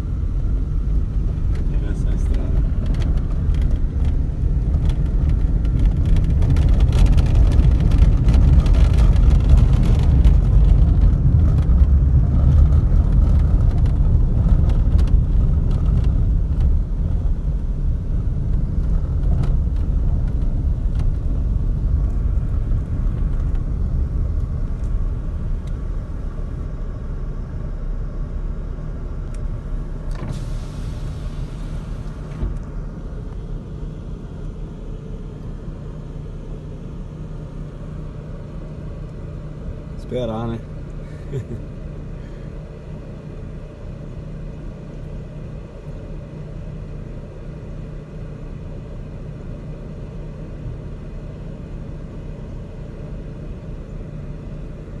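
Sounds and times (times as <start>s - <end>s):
vehicle engine and tyres rumbling: 0.0s - 55.0s.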